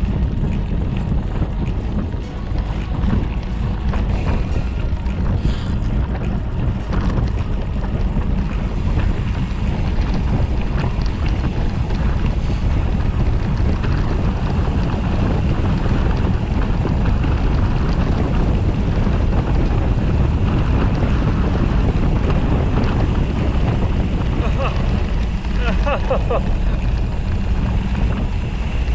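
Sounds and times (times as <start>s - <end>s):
wind buffeting microphone: 0.0s - 28.9s.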